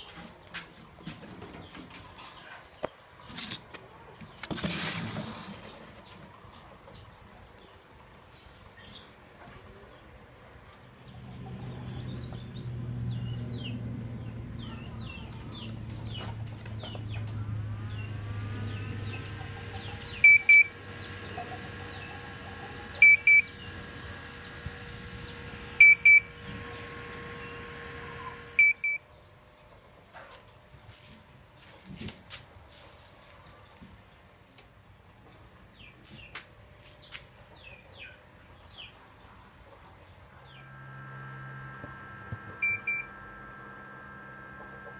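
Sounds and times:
steady low hum: 10.7s - 29.1s, 40.2s - 44.9s
faint high chirps: 17.2s - 29.0s, 40.4s - 44.9s
electronic buzzer double beeps: 20.1s - 21.2s, 22.8s - 23.6s, 25.6s - 26.4s, 28.3s - 29.0s, 40.6s - 44.9s.

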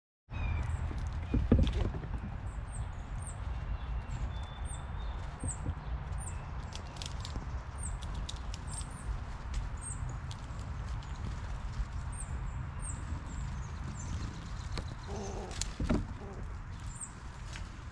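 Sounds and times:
small bird chirping: 9.8s - 17.2s.

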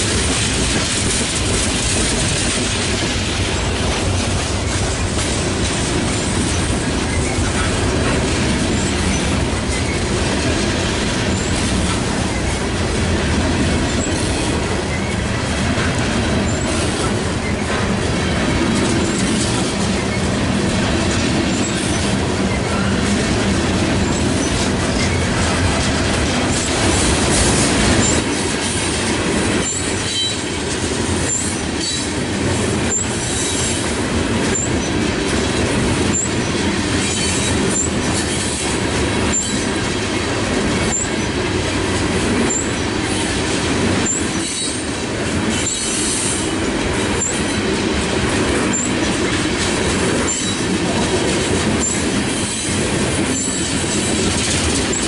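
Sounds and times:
rail joint clacks: 0.0s - 55.0s
train wheels rumbling on rail: 0.0s - 55.0s
high wheel squeaks: 29.6s - 30.4s, 40.8s - 41.3s.

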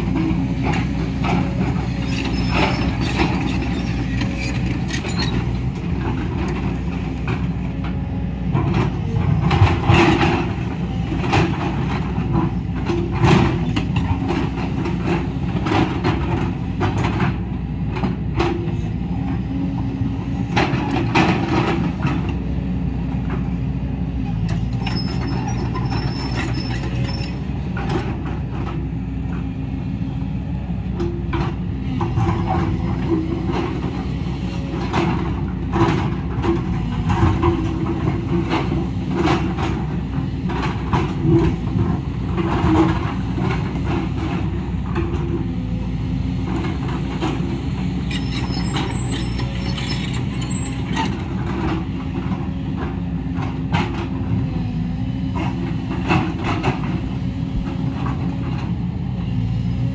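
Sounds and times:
excavator diesel engine: 0.0s - 59.9s.

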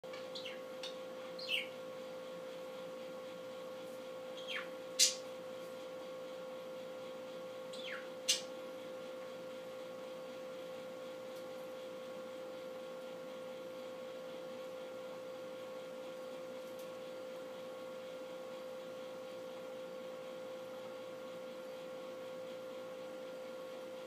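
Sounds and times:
steady hum: 0.0s - 24.0s
bird chirping: 0.3s - 0.7s, 1.4s - 1.8s, 4.4s - 5.2s, 7.7s - 8.5s.

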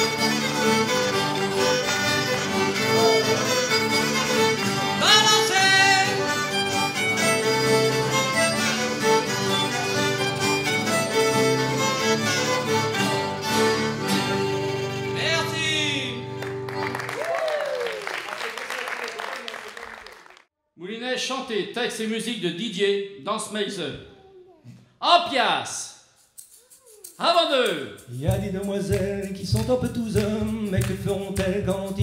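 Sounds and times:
fiddle melody: 0.0s - 17.1s
folk dance band playing: 0.0s - 17.3s.

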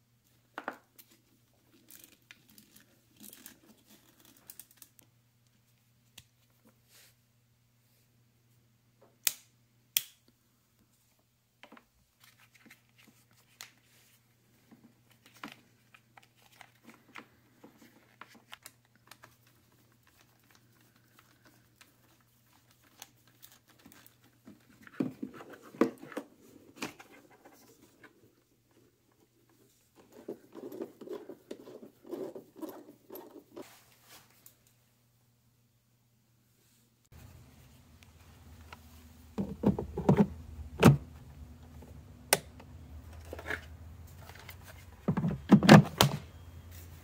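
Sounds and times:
faint steady hum: 0.0s - 47.0s.

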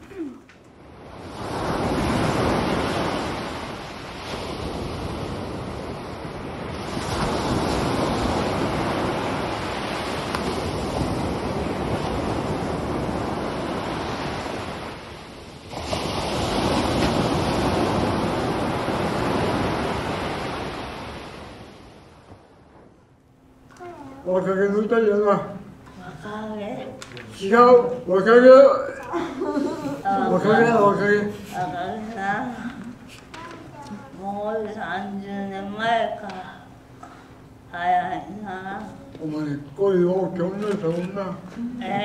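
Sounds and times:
ocean waves on shore over speakers: 0.0s - 28.6s, 29.4s - 42.0s.

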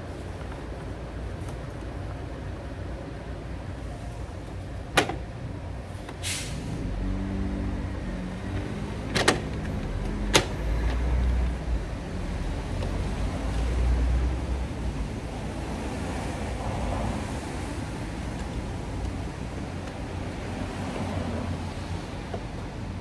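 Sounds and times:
sharp clicks and taps on engine parts: 8.5s - 11.6s, 18.2s - 20.2s.

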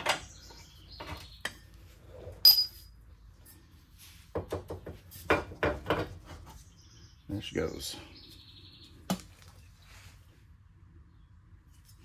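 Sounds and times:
sharp metallic clink: 2.4s - 2.9s
knocks and rattles of shock absorber: 4.4s - 6.3s.

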